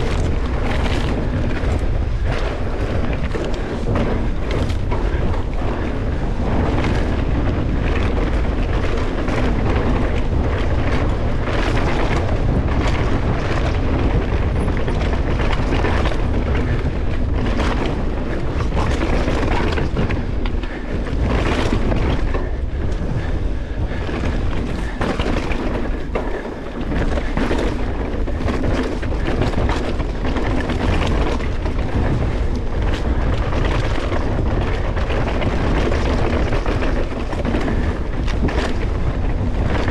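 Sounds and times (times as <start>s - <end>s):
bike knocks and rattles: 0.0s - 39.9s
wind buffeting microphone: 0.0s - 39.9s.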